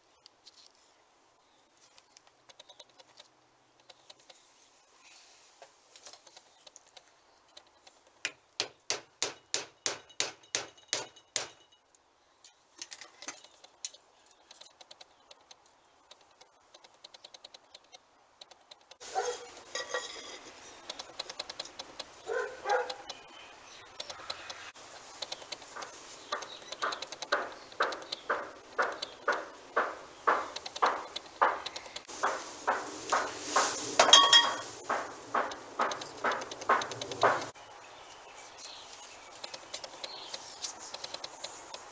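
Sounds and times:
hammer striking metal punch: 0:08.6 - 0:11.7.

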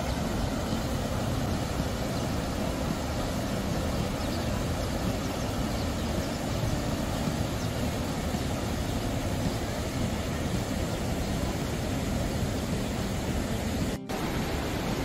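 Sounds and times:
river water pouring over weir: 0:00.0 - 0:15.0.

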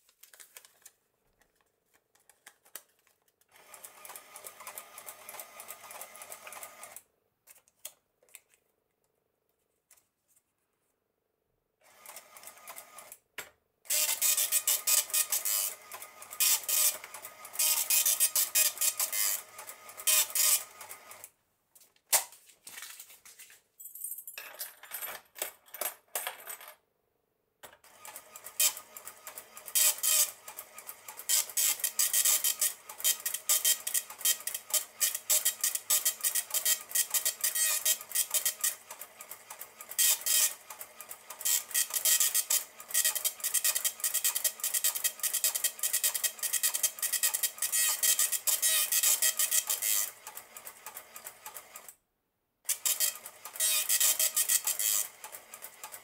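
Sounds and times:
dot matrix printer printing: 0:03.5 - 0:07.0, 0:11.9 - 0:13.2, 0:13.9 - 0:21.3, 0:27.8 - 0:51.9, 0:52.7 - 0:56.0.

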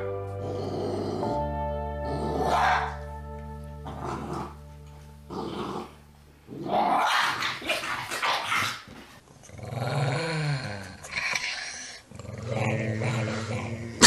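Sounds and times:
dog growling: 0:00.4 - 0:03.0, 0:03.8 - 0:04.6, 0:05.3 - 0:14.0
puppy growling and snapping: 0:05.3 - 0:14.0.

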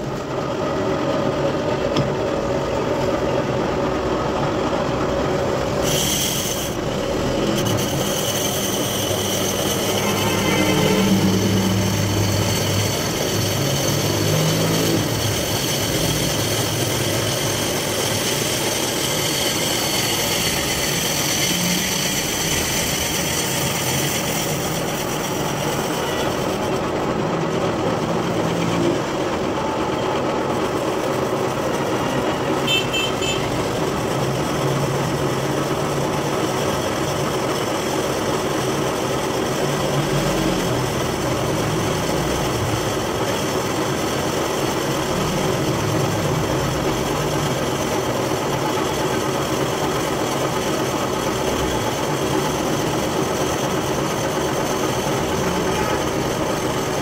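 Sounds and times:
lathe machine hum and whine: 0:00.0 - 0:57.0.

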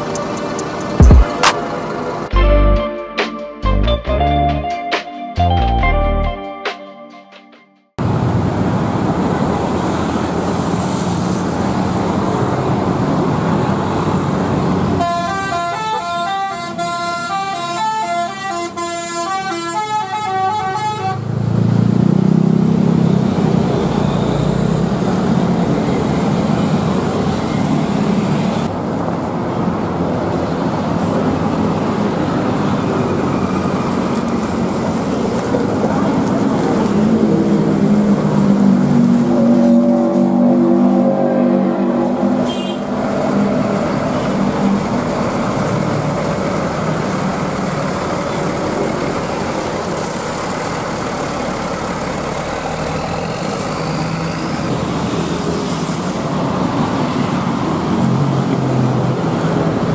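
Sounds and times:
bus engine pulling away: 0:00.0 - 0:03.0, 0:08.0 - 0:19.4, 0:21.1 - 0:59.9
musical bus horn: 0:00.0 - 0:07.4, 0:14.9 - 0:21.3, 0:39.2 - 0:43.1
street traffic: 0:00.0 - 0:59.9.

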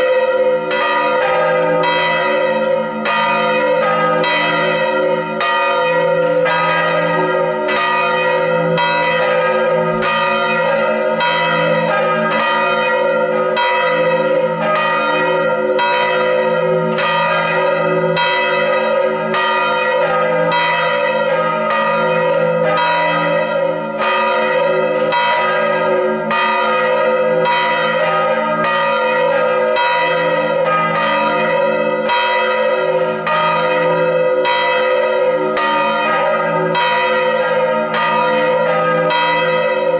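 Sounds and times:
church bells ringing in peal: 0:00.0 - 0:39.9.

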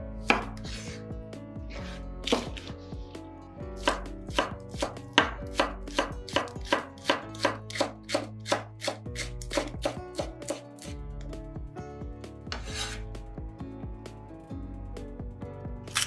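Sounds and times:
knife chopping on wooden board: 0:00.2 - 0:01.0, 0:01.8 - 0:02.7, 0:03.8 - 0:10.9.

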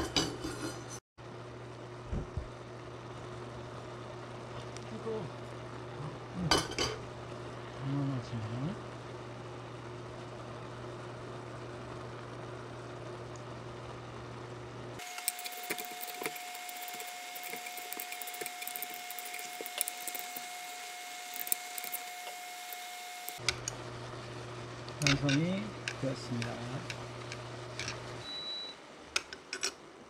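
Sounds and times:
steady whine: 0:15.0 - 0:23.6.

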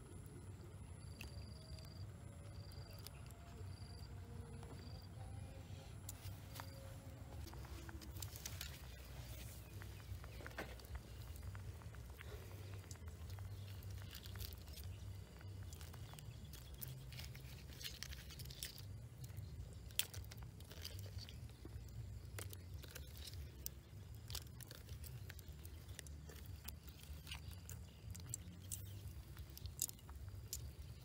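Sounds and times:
low steady rumble: 0:00.0 - 0:31.0
wood fire crackling: 0:06.2 - 0:31.0.

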